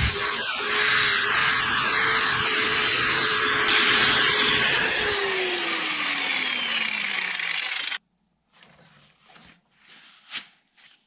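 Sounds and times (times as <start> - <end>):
angle grinder grinding steel: 0.0 - 8.0
gloves rustling: 8.4 - 11.0.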